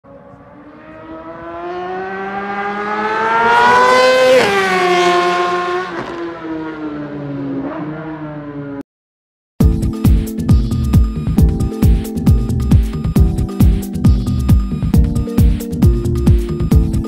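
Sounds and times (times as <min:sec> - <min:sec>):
sport bike engine accelerating: 0:00.1 - 0:08.8.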